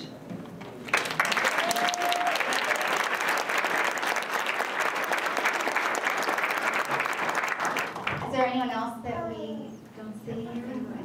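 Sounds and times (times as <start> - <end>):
audience applause: 0.8 - 8.2.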